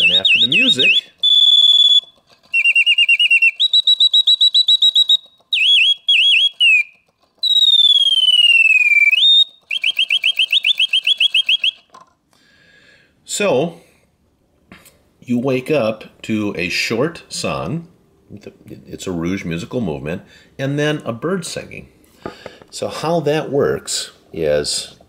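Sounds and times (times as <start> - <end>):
mechanical bird whistling: 0.0 - 12.0.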